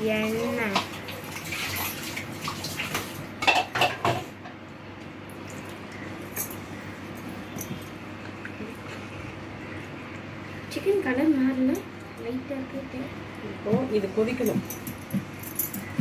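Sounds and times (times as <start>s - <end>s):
liquid sloshing: 0.0s - 4.1s.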